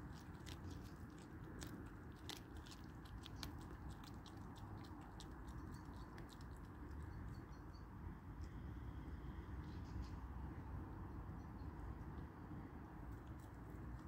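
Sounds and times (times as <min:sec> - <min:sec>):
fox chewing on bone: 0:00.0 - 0:07.7, 0:13.0 - 0:14.0.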